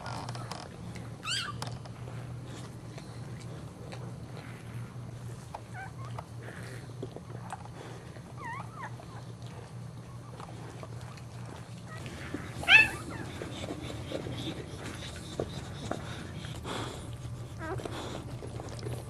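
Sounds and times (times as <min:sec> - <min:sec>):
low steady hum: 0:00.0 - 0:19.0
puppy squeaking: 0:01.2 - 0:01.8, 0:11.9 - 0:14.4
dog licking with wet clicks: 0:07.0 - 0:19.0.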